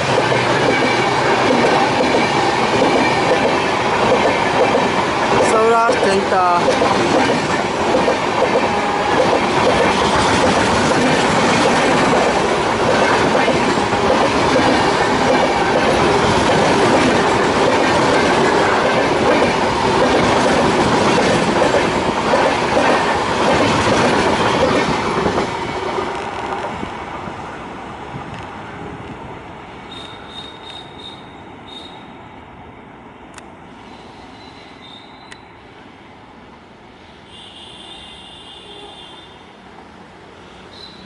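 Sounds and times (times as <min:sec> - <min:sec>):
train wheels running over rails: 0:00.0 - 0:27.4.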